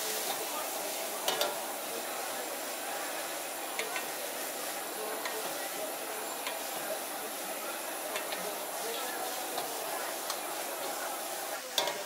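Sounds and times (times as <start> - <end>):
stir-frying sizzle in a wok: 0.0 - 12.0
metal ladle clicking on wok: 1.3 - 1.6, 11.8 - 12.0.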